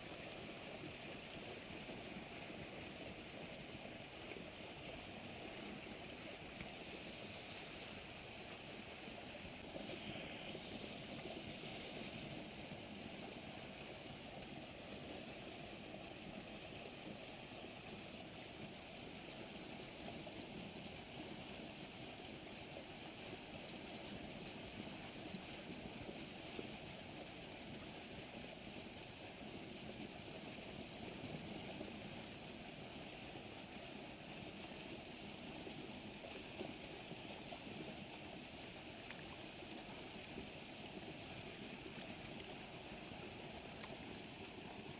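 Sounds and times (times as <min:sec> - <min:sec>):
water rushing in a canal: 0:00.0 - 0:44.9
faint high-pitched ticks: 0:06.5 - 0:06.8.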